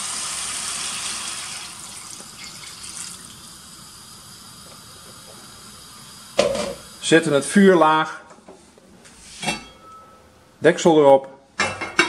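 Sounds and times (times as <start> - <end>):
water pouring into a pot: 0.0 - 4.6.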